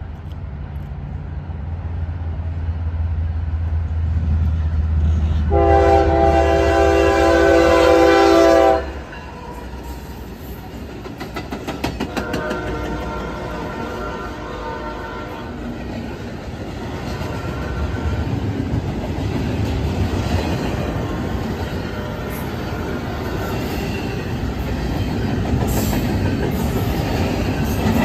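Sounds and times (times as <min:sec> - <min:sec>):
diesel locomotive rumbling: 0:00.0 - 0:28.0
train horn chord: 0:05.5 - 0:09.7, 0:12.1 - 0:15.6
train wheels clicking over rail joints: 0:09.7 - 0:13.7, 0:15.6 - 0:28.0.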